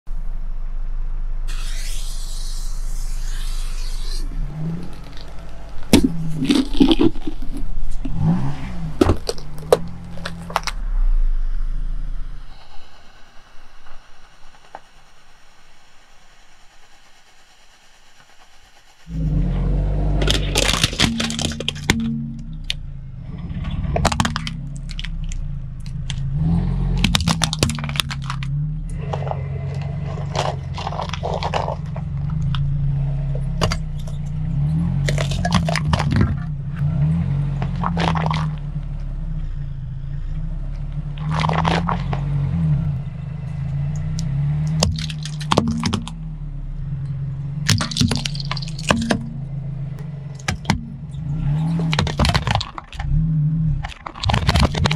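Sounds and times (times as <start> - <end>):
car engine low hum: 0.0 - 54.9
plastic and tins crunching under tyre: 2.6 - 10.9, 20.0 - 22.8, 23.8 - 32.7, 33.3 - 36.5, 37.5 - 38.7, 41.2 - 42.4, 44.2 - 46.2, 47.6 - 49.5, 50.4 - 54.9.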